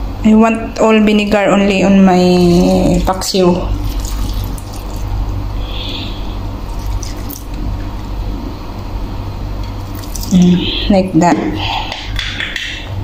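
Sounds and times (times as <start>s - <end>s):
liquid trickling into pot: 2.2s - 5.4s, 6.6s - 7.6s, 9.8s - 10.4s.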